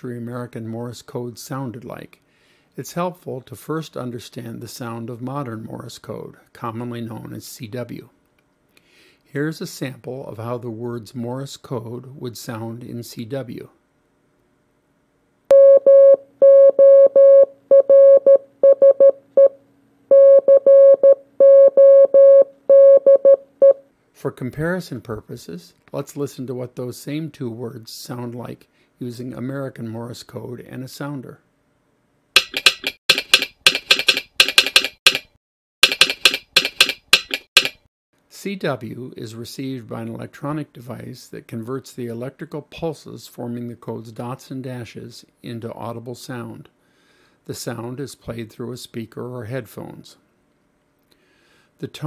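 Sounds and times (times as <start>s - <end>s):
morse code beeping tone: 15.5s - 23.8s
telegraph sounder clicking: 32.4s - 37.8s.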